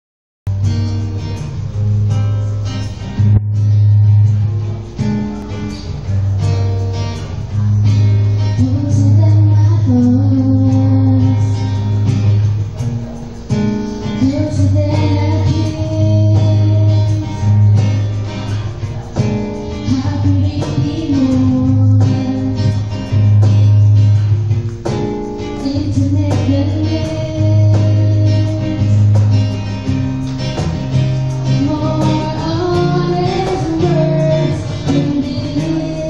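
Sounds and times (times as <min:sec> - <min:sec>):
strummed acoustic guitar: 0:00.5 - 0:36.0
woman singing into a microphone: 0:07.9 - 0:12.2, 0:14.0 - 0:17.8, 0:19.7 - 0:23.6, 0:25.4 - 0:29.3, 0:31.4 - 0:36.0.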